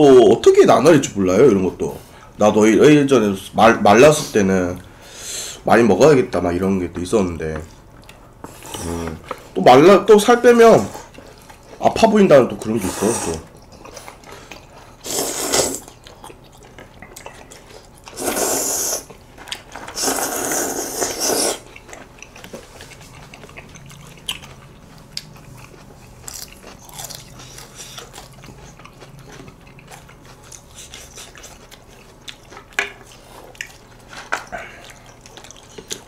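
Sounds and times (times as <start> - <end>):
chewing: 7.8 - 9.6, 10.8 - 36.0
loud noodle slurping: 12.8 - 13.5, 15.0 - 15.9, 18.1 - 19.1, 19.9 - 21.7.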